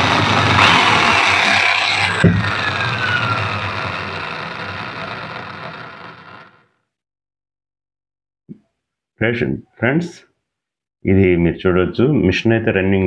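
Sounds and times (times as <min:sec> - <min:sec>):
electric motor whining: 0:00.0 - 0:06.8.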